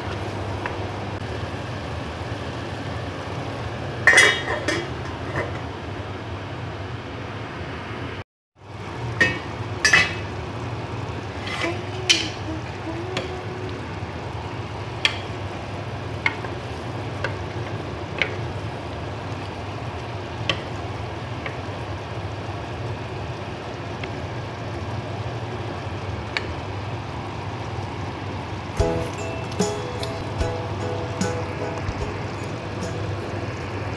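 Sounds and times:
stew simmering hiss: 0:08.7 - 0:33.9
lid and spoon clinking on pot: 0:09.2 - 0:10.3.

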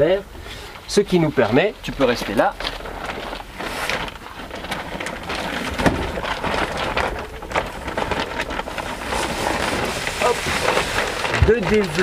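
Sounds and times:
fabric rustling and crinkling: 0:00.0 - 0:12.0
bump: 0:03.9 - 0:11.8.

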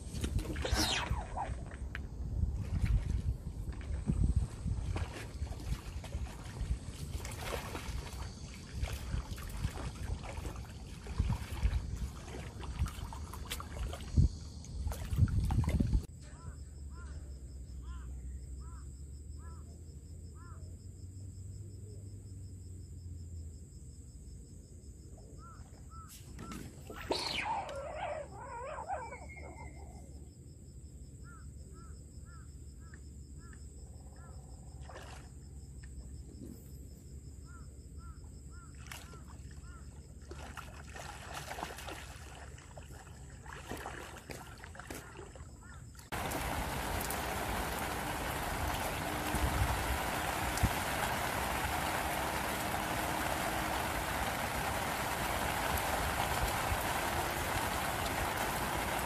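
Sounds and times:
bird chirping: 0:25.4 - 0:30.1
rain falling on pond: 0:46.1 - 0:59.0.

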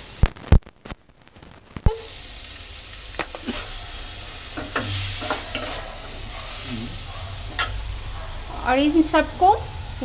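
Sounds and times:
vegetables sizzling in oil: 0:00.0 - 0:10.0
steel spoon scraping pan: 0:03.3 - 0:06.7, 0:07.5 - 0:07.8.

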